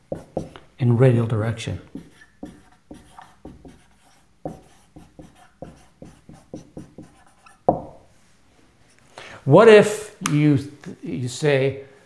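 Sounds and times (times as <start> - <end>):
marker writing on a whiteboard: 0.0 - 0.6, 1.8 - 8.1.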